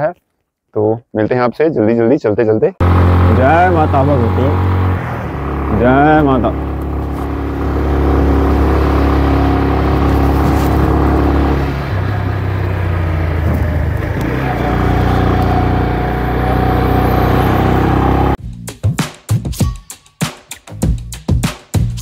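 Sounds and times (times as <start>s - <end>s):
bus passing close: 2.8s - 18.4s
motorcycle engine running: 2.8s - 18.4s
road and wind noise: 2.8s - 18.4s.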